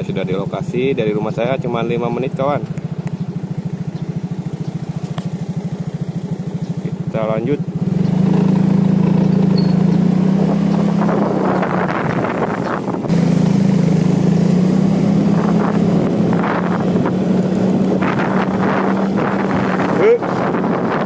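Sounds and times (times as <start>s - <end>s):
motorcycle engine running: 0.0s - 21.0s
wind noise on microphone: 9.0s - 21.0s.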